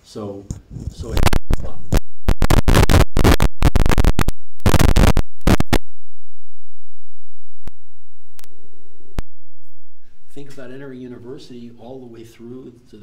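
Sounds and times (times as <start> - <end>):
harsh static crackling bursts: 0.6 - 6.0, 7.6 - 12.4.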